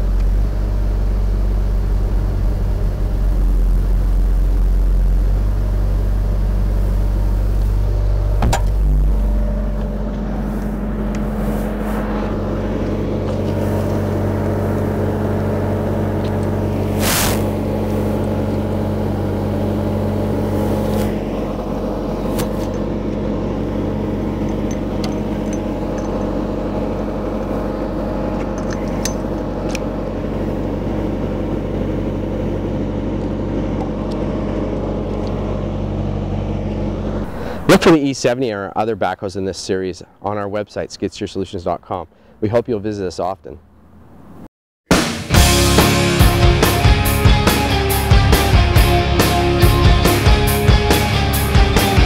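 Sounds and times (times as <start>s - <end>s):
diesel engine idling: 0.0s - 38.1s.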